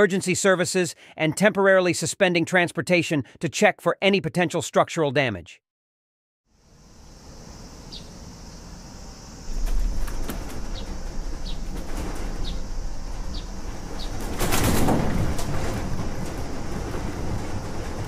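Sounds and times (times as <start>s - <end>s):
steady high hiss: 6.5s - 14.8s
room rumbling and rattling: 9.3s - 18.0s.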